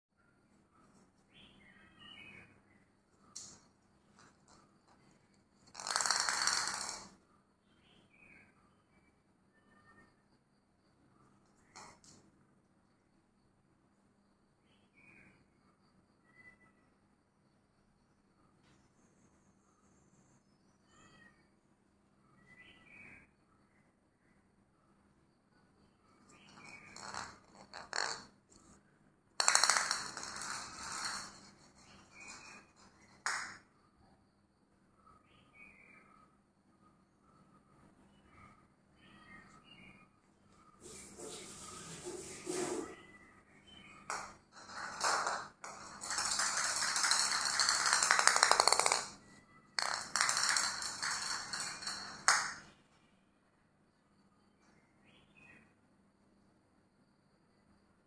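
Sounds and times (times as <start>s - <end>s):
plastic ball rolling rattle: 4.2s - 7.2s, 26.3s - 28.8s, 29.4s - 33.6s, 44.0s - 52.7s
plastic ball scraping on stone: 5.6s - 7.2s, 26.3s - 28.8s, 29.4s - 33.6s, 44.0s - 49.2s, 49.8s - 52.7s.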